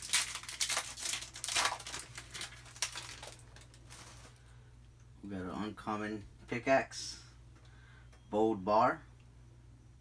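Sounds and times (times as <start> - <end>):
plastic wrapper crinkling and tearing: 0.0 - 4.5.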